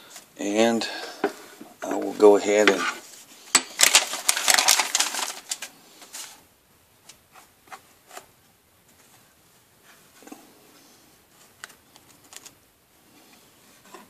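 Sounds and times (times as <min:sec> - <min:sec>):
packing paper rustling: 0:02.1 - 0:06.4, 0:11.4 - 0:12.6.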